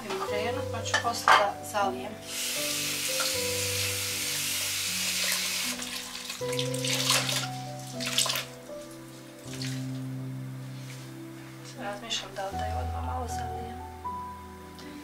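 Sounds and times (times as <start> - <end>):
soft background music: 0.0 - 15.0
kitchenware knocking: 0.9 - 1.6
kitchen tap running: 2.3 - 8.6.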